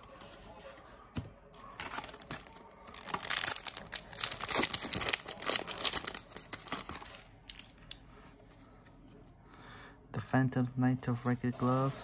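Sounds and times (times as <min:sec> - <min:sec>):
foil wrapper tearing and crinkling: 0:01.7 - 0:07.6.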